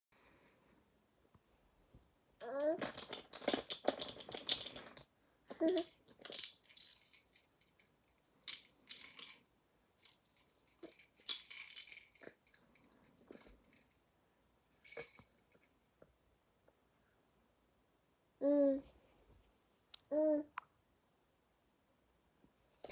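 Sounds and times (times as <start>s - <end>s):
baby rattle shaken: 2.4s - 14.0s, 14.7s - 15.8s.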